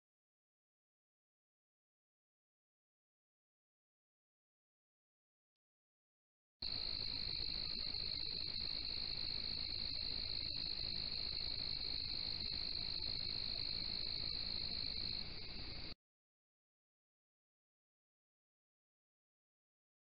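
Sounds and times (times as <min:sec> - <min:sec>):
high-pitched insect trill: 0:06.6 - 0:16.0.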